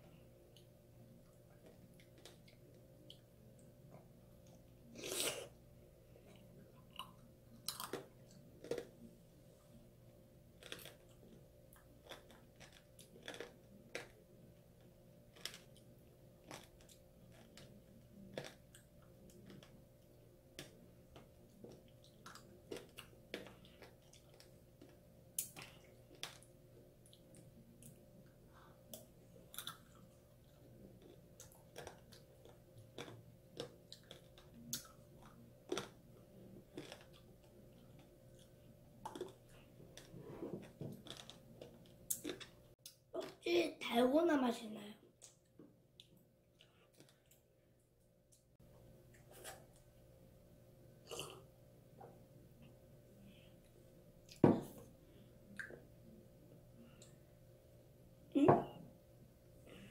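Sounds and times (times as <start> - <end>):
faint steady hum: 0.0 - 59.9
candy crunching while chewing: 7.0 - 9.0, 10.6 - 14.2, 15.3 - 19.8, 30.9 - 42.6.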